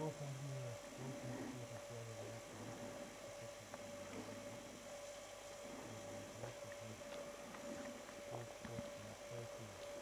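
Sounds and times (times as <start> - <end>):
soft ticks: 9.7 - 10.0.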